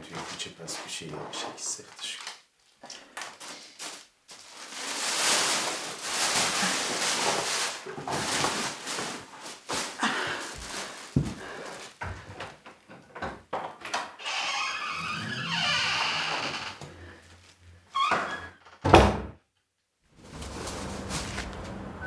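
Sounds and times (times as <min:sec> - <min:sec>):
plastic bag rustling: 0:03.2 - 0:12.3, 0:20.1 - 0:22.0.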